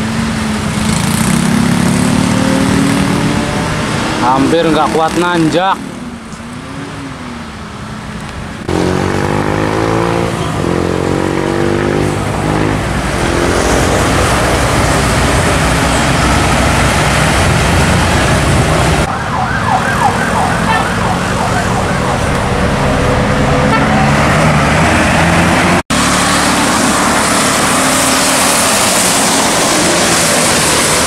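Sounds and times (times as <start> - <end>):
bus engines passing: 0.0 - 31.0
gliding siren-like horn: 19.0 - 24.3.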